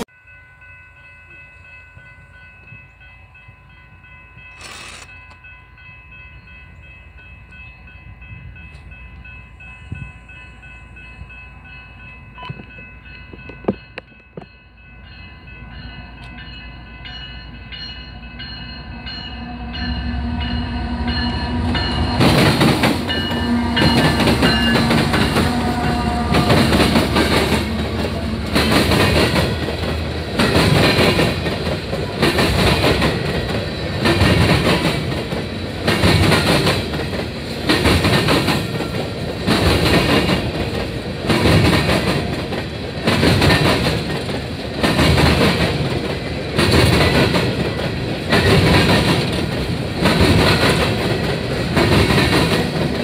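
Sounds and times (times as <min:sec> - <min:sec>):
crossing bell ringing: 0:00.0 - 0:37.6
freight train passing: 0:00.0 - 0:53.0.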